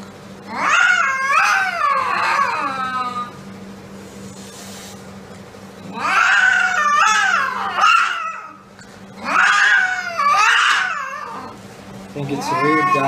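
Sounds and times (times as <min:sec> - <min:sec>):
cat yowling: 0:00.5 - 0:03.4, 0:05.8 - 0:08.6, 0:09.2 - 0:11.6, 0:12.3 - 0:13.0.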